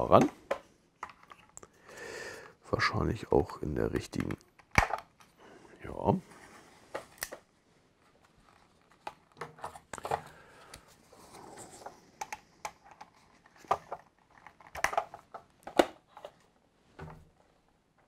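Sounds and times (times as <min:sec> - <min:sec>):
plastic toy parts clicking: 0:12.2 - 0:15.9.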